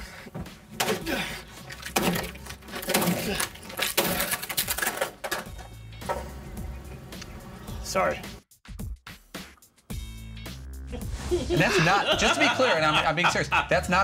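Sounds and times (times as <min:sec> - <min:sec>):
acoustic guitar being smashed: 0:00.7 - 0:06.2.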